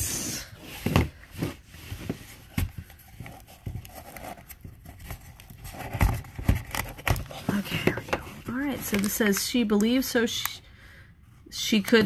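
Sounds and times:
cardboard box handled: 0.6s - 9.2s.

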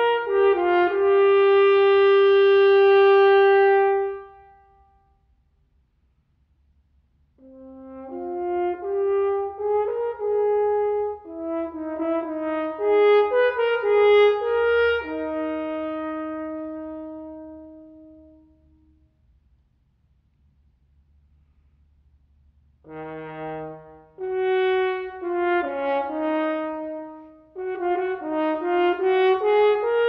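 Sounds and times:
french horn playing: 0.0s - 5.0s, 7.4s - 19.1s, 22.8s - 30.0s.

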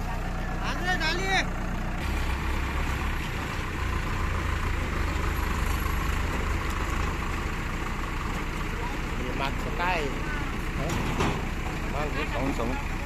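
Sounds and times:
diesel engines running: 0.0s - 13.0s.

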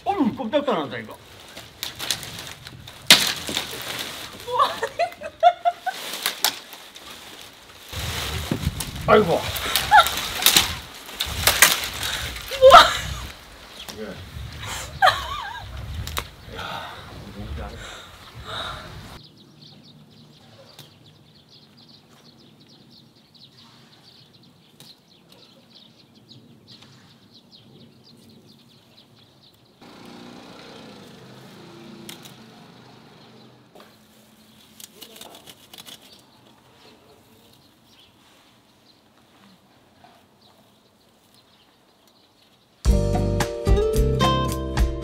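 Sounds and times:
small birds chirping: 8.7s - 42.9s.

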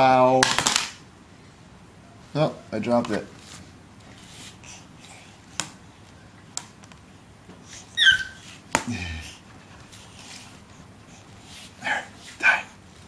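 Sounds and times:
baby squealing: 7.8s - 8.5s.

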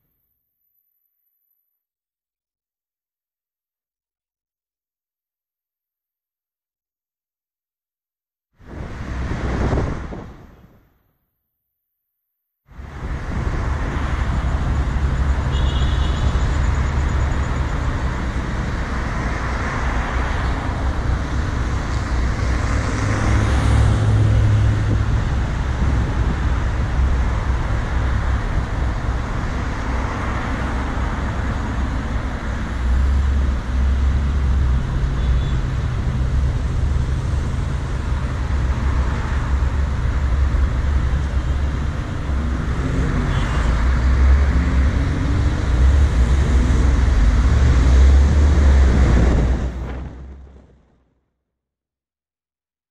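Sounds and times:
traffic rumble: 12.7s - 51.2s.

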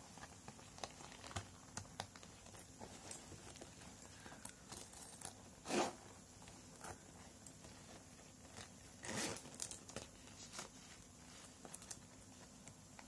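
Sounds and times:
bag rustling and clicking: 0.0s - 13.0s
metal zipper being pulled: 5.2s - 6.2s, 9.0s - 9.8s.

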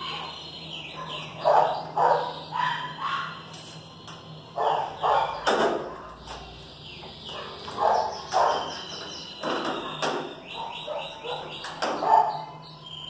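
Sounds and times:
dog barking: 0.9s - 3.4s, 4.6s - 6.2s, 7.3s - 8.7s, 10.6s - 12.6s.

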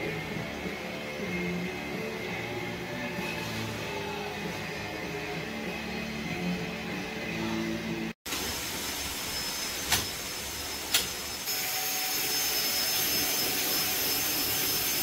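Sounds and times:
power tool whirring: 9.4s - 15.0s.

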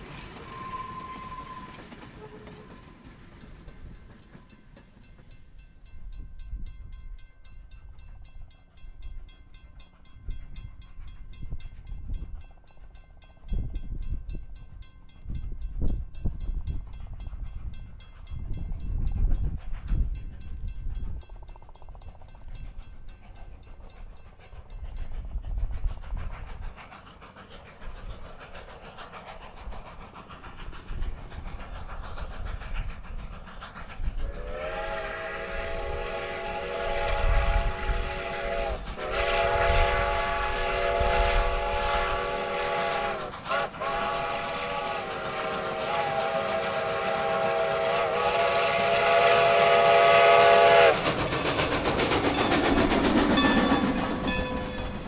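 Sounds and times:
steam locomotive whistle: 0.2s - 3.1s, 34.2s - 55.0s
locomotive engine low rumble: 48.5s - 55.0s.

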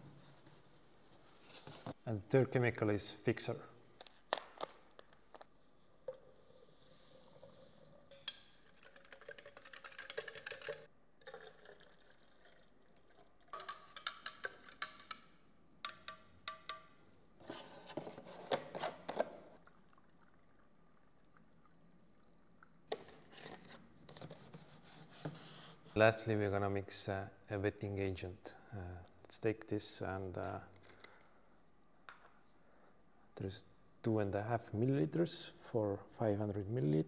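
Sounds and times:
powder poured into water: 6.0s - 13.9s.

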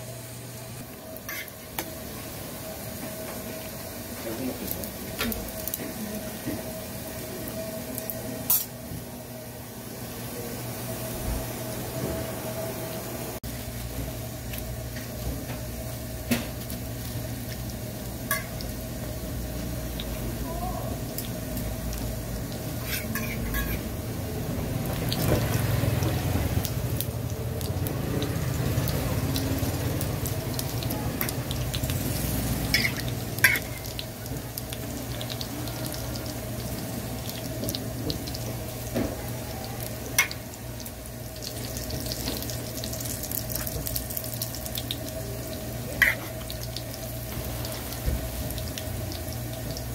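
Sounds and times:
food sizzling in oil: 0.0s - 49.9s
spatula clinking on griddle: 18.3s - 18.6s, 22.8s - 23.8s, 32.7s - 33.9s.

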